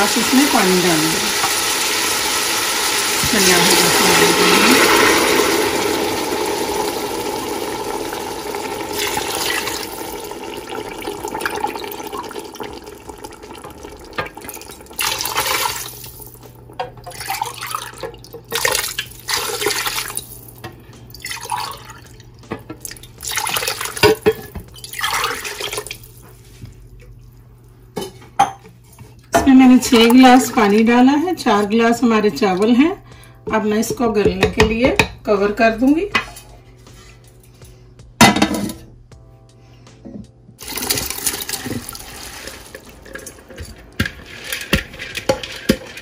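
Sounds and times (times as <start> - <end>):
water splashing into hot pot: 0.0 - 26.2, 40.6 - 46.0
liquid bubbling: 2.2 - 16.4, 21.2 - 26.2.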